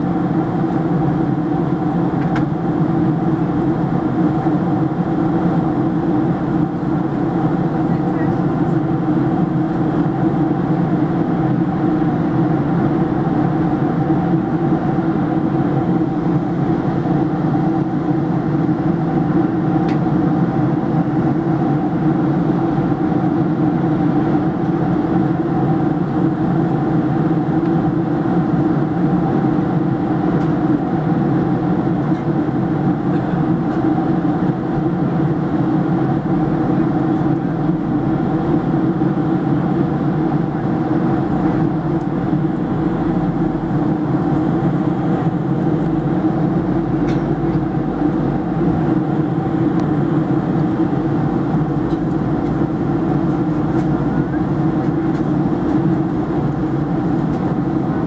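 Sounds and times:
airplane cabin engine drone: 0.0 - 58.0.

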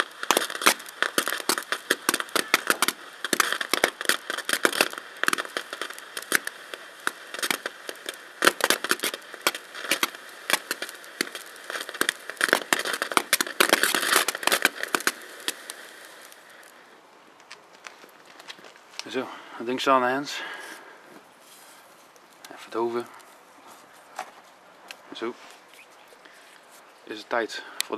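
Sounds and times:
firework crackling and popping: 0.0 - 27.9.

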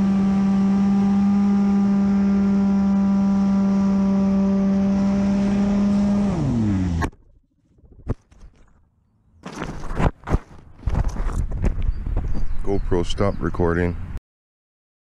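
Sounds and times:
electric motor and propeller: 0.0 - 7.2.

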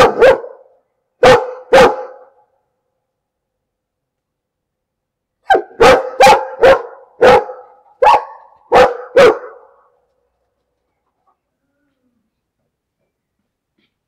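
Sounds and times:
dog barking: 0.0 - 2.5, 5.4 - 9.9.

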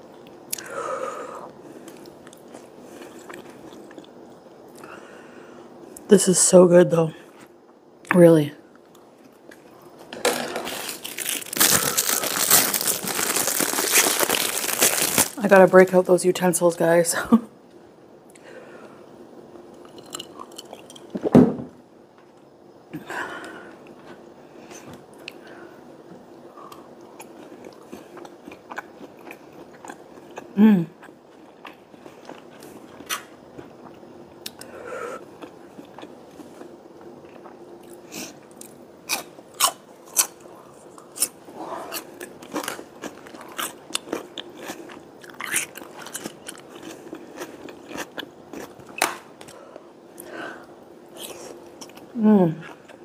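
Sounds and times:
person chewing: 1.8 - 4.9, 10.7 - 15.4, 26.7 - 49.1.

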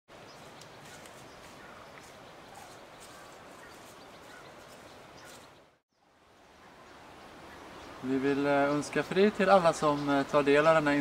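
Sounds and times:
footsteps crunching on leaves: 0.2 - 5.6
faint bird chirps: 0.3 - 8.0.

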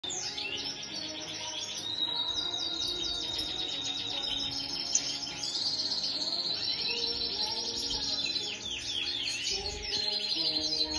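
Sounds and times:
bird twittering song: 0.0 - 10.9.

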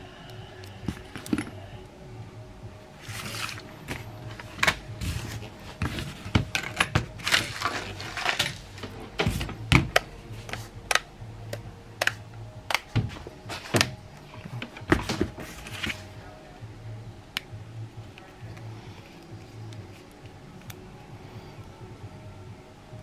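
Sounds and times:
sharp clicks and taps of handling: 9.2 - 13.1.

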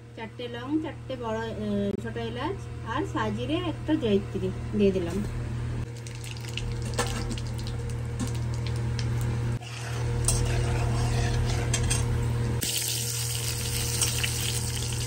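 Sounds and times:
metal spatula scraping pan: 9.6 - 12.0
spices sizzling in hot oil: 12.6 - 15.0.

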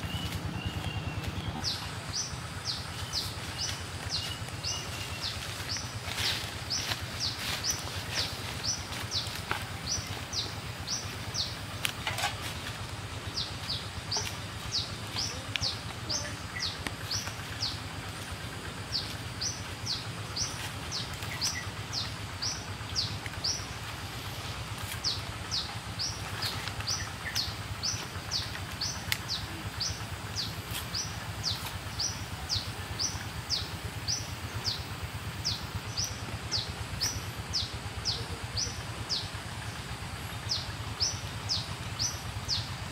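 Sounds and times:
bird calling: 0.0 - 42.8
steady low hum: 0.0 - 42.9.

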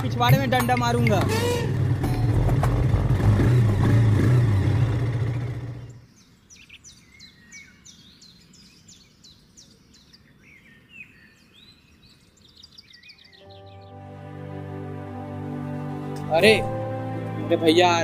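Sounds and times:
motorcycle engine droning: 0.0 - 6.0
birds chirping: 0.0 - 18.0.

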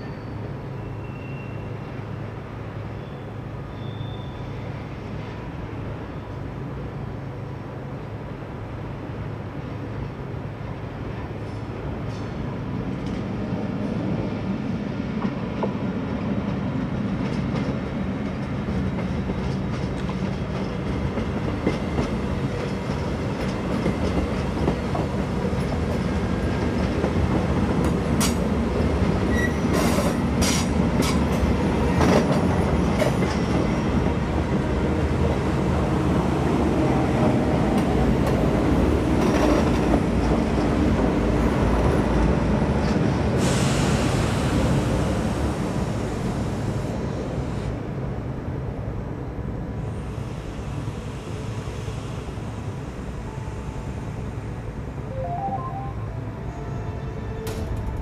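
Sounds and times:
train wheel squeal: 0.0 - 2.1, 2.9 - 4.8, 29.2 - 31.2
train wheels rumbling on rails: 4.6 - 54.8, 57.0 - 58.0.

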